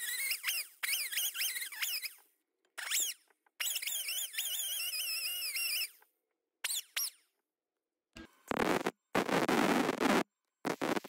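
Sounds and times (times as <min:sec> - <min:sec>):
sped-up squeaky voice chatter: 0:00.0 - 0:07.3.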